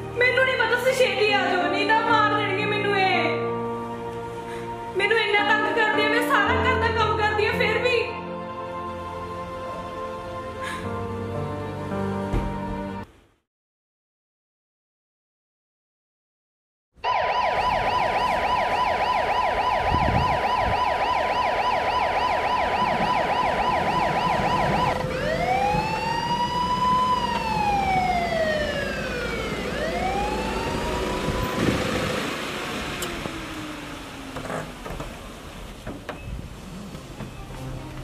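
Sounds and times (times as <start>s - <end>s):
police siren: 17.0s - 35.4s
vehicle rumble: 22.8s - 38.0s.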